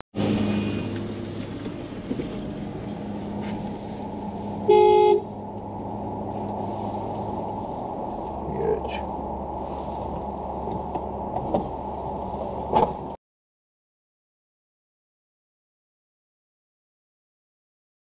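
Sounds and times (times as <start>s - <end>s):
vehicle road and engine drone: 0.0s - 13.2s
car horn honk: 4.6s - 5.3s.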